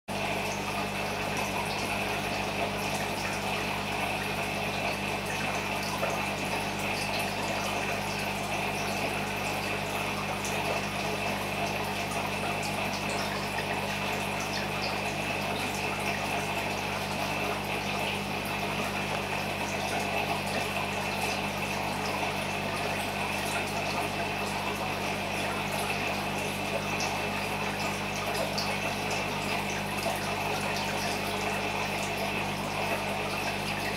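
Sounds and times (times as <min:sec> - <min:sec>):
aquarium filter pump humming: 0:00.1 - 0:33.9.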